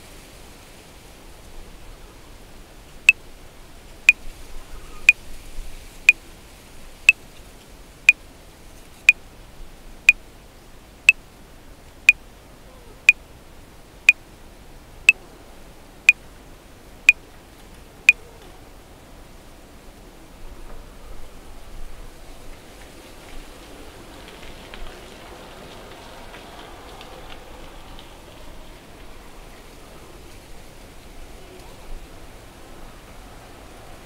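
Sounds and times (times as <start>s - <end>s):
faint steady hiss: 0.0s - 34.0s.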